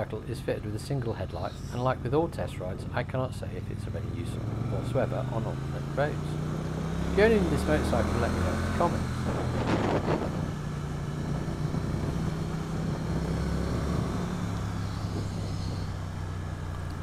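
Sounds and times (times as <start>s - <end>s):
motorcycle engine cruising: 0.0s - 17.0s
wind rush: 9.2s - 16.1s.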